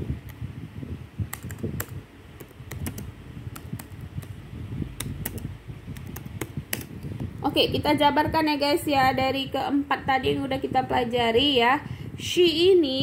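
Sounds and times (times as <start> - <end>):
low steady rumble: 0.0 - 13.0
keyboard keystroke clicks: 1.3 - 4.4, 5.0 - 6.9.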